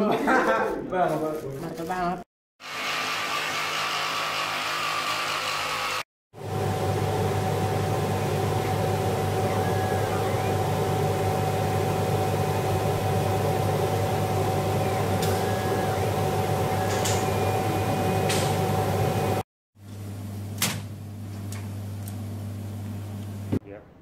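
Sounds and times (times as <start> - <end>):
laser cutter humming: 6.4 - 19.4
cutting head whine: 6.9 - 19.4.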